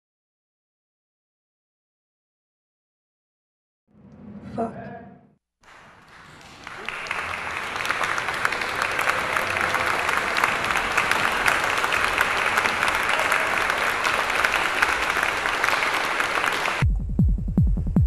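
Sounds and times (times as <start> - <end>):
hands clapping: 5.6 - 16.8.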